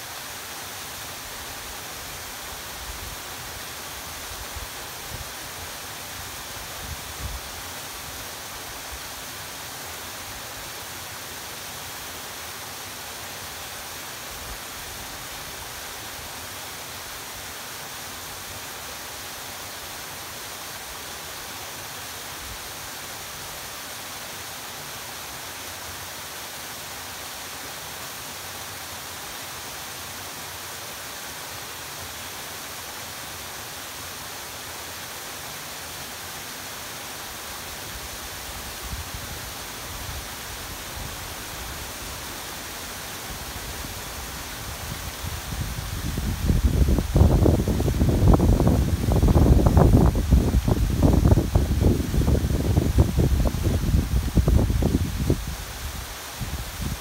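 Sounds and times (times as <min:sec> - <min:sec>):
wind rumbling on microphone: 0:44.3 - 0:57.0.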